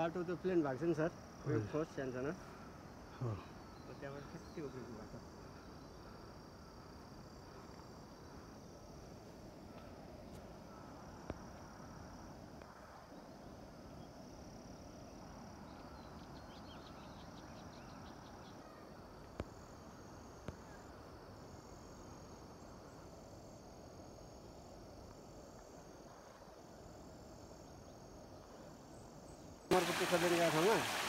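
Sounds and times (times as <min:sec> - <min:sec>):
high thin insect calls: 0:00.0 - 0:31.0.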